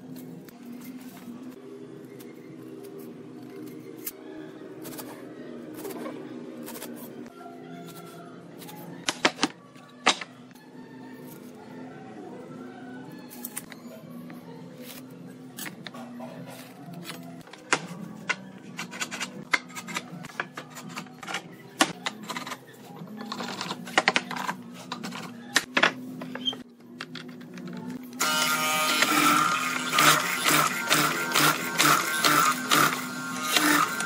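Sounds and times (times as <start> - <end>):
machine whining and rattling: 16.4 - 34.0.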